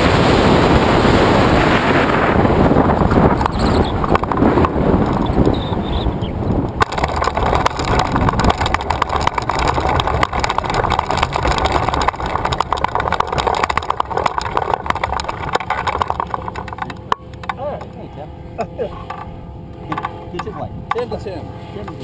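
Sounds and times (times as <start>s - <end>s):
wind rushing over microphone: 0.0s - 17.8s
wheels rattling over rough grass: 2.3s - 18.1s.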